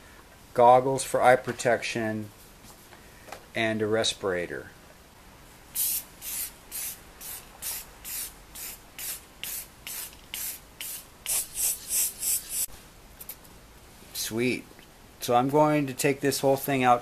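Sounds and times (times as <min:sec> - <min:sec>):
aerosol spray can hissing: 0:05.8 - 0:12.7.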